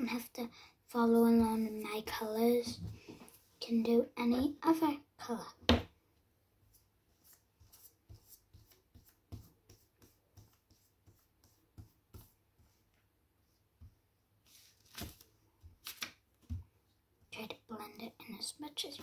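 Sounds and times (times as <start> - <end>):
paintbrush brushing on paper: 6.6 - 14.8.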